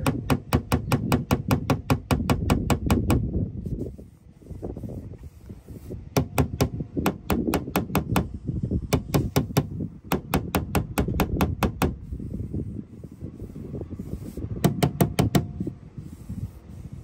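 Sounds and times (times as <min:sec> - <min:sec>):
hammer tapping on metal panel: 0:00.0 - 0:03.2, 0:06.2 - 0:08.3, 0:08.9 - 0:12.0, 0:14.6 - 0:15.6.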